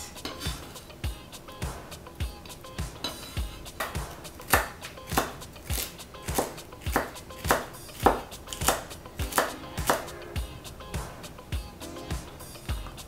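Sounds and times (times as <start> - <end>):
knife chopping on wooden board: 3.8 - 10.1.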